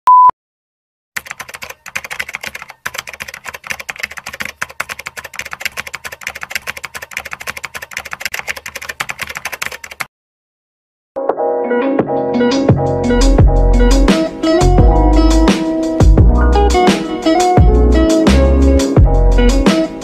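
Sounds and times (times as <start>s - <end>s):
keyboard typing clicks: 1.2s - 10.1s.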